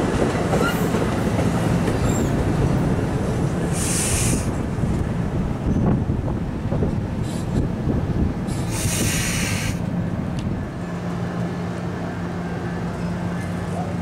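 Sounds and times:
train wheels rumbling on rail: 0.0 - 14.0
brief loud hiss: 3.8 - 4.5, 8.5 - 9.8.

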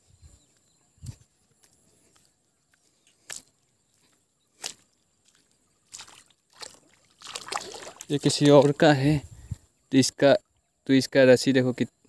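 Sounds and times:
footsteps on mud: 0.4 - 9.0.

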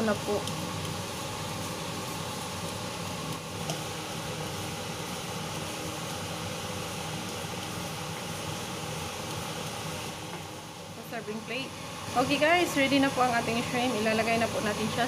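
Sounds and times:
wooden spatula stirring in wok: 0.0 - 10.6
kitchen hiss and hum: 0.0 - 15.0.

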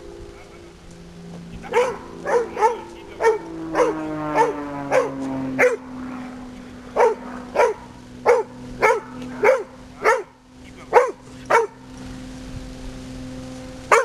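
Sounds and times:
dog barking: 1.7 - 5.9, 7.0 - 11.8.

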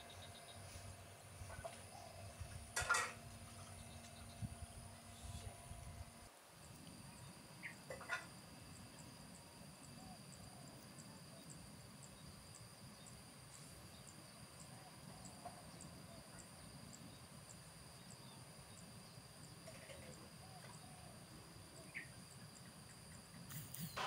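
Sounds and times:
high insect-like buzz: 21.6 - 24.0
bird chirps: 21.8 - 24.0.

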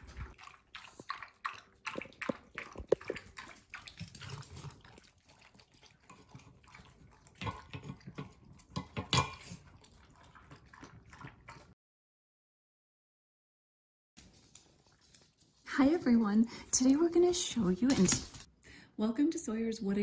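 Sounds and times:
dog lapping water: 0.0 - 11.8.

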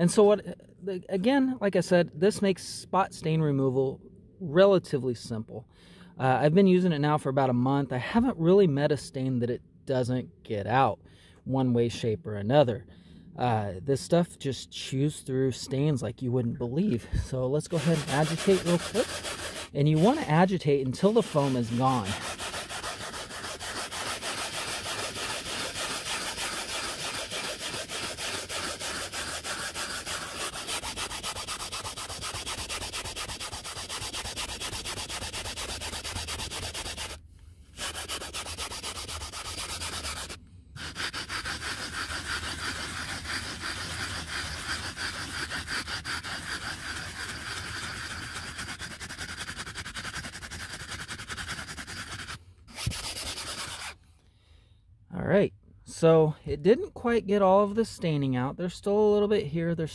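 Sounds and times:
brush scrubbing cloth seat: 17.2 - 37.2, 37.8 - 54.0.

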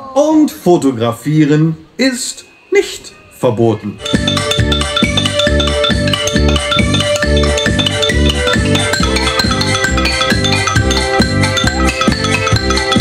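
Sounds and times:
backing music with bass beat: 4.0 - 13.0
xylophone notes: 4.0 - 13.0.

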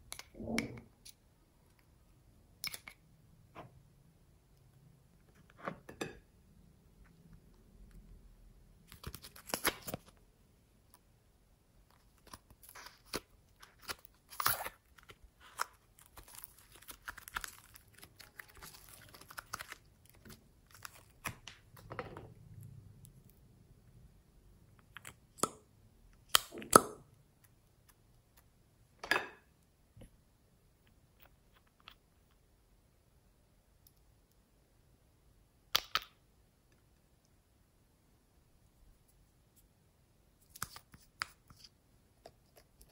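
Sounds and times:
slime crackling and tearing: 12.1 - 21.5.

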